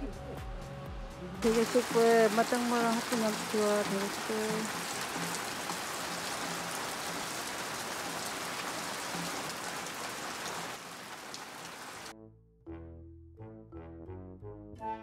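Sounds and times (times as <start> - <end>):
heavy rain hissing: 1.4 - 12.1.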